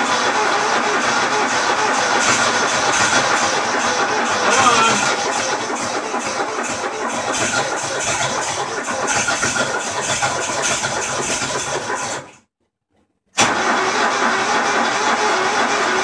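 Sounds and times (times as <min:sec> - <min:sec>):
riding mower engine running: 0:00.0 - 0:12.2.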